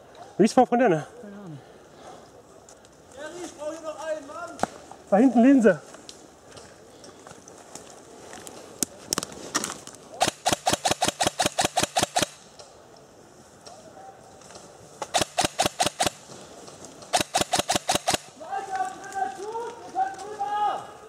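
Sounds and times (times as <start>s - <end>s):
airsoft gun firing: 10.2s - 12.4s, 15.0s - 16.2s, 17.1s - 18.4s.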